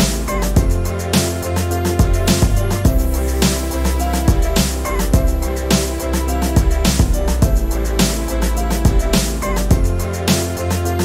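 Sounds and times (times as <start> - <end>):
held bass line: 0.0 - 11.0
drum hits: 2.0 - 5.9, 6.5 - 10.0.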